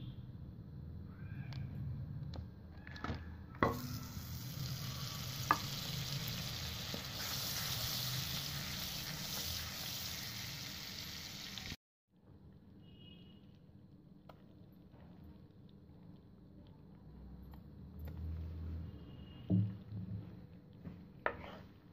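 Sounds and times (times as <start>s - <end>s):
butter sizzling in a pan: 3.6s - 11.8s.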